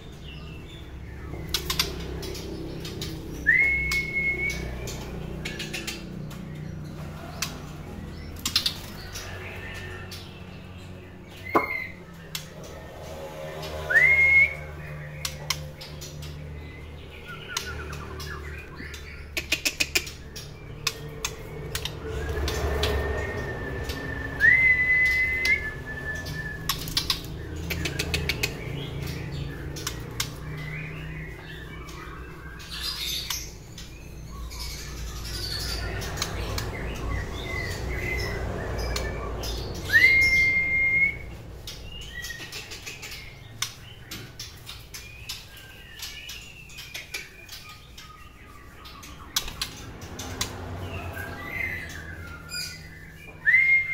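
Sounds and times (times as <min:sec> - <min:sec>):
bird whistling calls: 0:03.4 - 0:04.7, 0:11.5 - 0:12.0, 0:13.9 - 0:14.9, 0:23.4 - 0:28.4, 0:39.8 - 0:41.4, 0:51.5 - 0:53.9.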